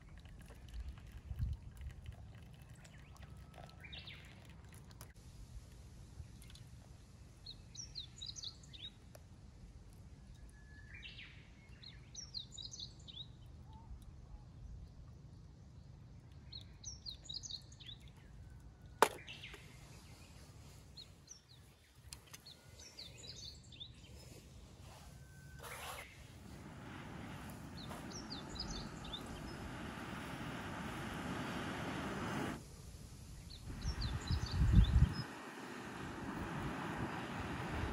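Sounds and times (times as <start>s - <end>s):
low outdoor rumble: 23.6s - 37.9s.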